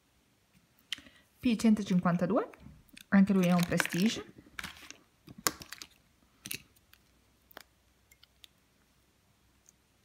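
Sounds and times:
plastic jars clicking: 2.9s - 6.7s.

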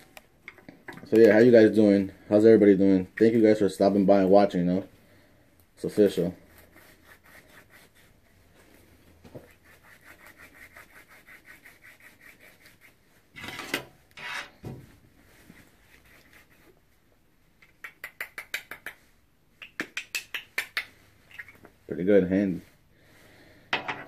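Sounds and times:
grinder scrapes: 13.4s - 14.6s.

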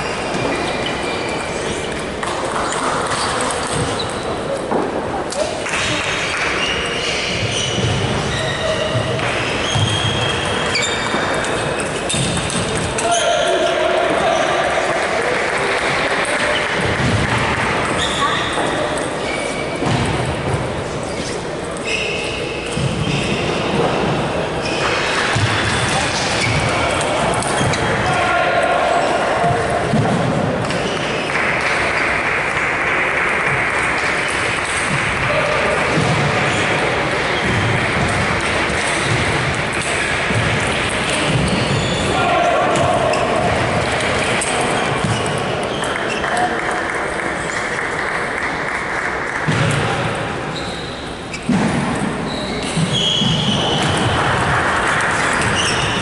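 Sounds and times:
large hall background noise: 0.0s - 56.0s
applause in large hall: 5.6s - 6.6s, 14.1s - 17.9s, 31.0s - 35.9s, 45.8s - 50.0s.

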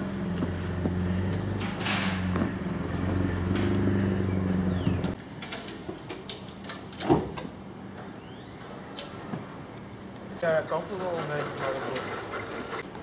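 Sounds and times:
forklift humming: 0.0s - 5.2s.

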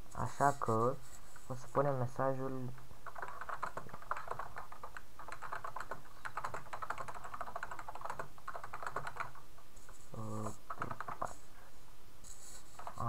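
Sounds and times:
keyboard typing: 2.7s - 11.4s, 12.3s - 13.0s.

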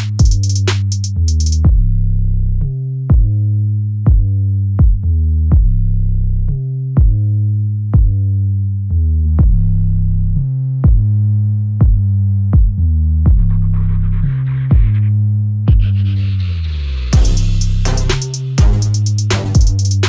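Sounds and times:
drum machine beat: 0.0s - 1.9s, 3.1s - 3.4s, 4.1s - 5.8s, 7.0s - 7.2s, 8.0s - 8.2s, 9.4s - 9.7s, 10.8s - 11.2s, 11.8s - 13.9s, 14.6s - 15.0s, 15.7s - 16.0s, 17.1s - 20.0s
deep sustained bass notes: 0.0s - 20.0s.

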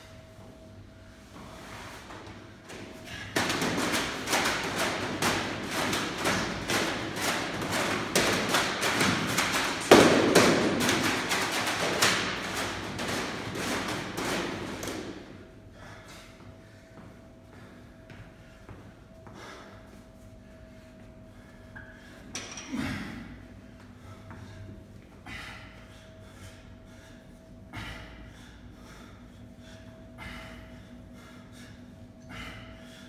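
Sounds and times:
battle ropes slapping floor: 2.1s - 15.4s.

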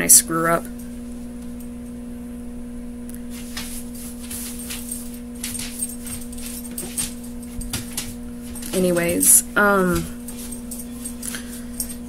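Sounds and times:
steady electrical hum: 0.0s - 12.0s
small metallic jingles: 4.0s - 12.0s.

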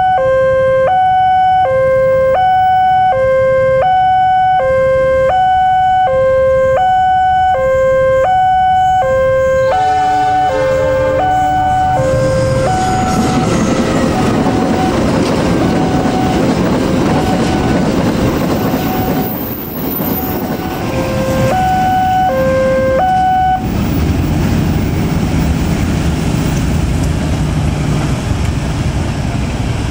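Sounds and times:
level crossing alarm ding-dong: 0.0s - 9.8s, 10.4s - 13.4s, 20.6s - 23.6s
vehicle rumble: 4.1s - 29.9s
freight train rumbling past: 8.5s - 29.9s.

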